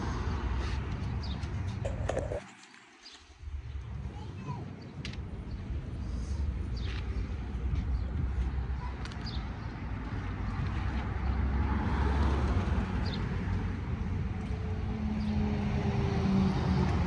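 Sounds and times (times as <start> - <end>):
road traffic passing: 0.0 - 17.0
vehicle engine passing: 10.2 - 17.0.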